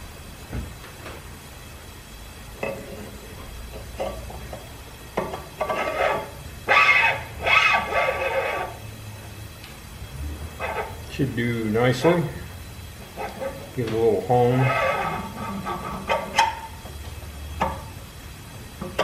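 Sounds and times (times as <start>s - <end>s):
metal scraping against metal: 5.6s - 8.9s, 10.4s - 11.2s, 13.1s - 16.8s.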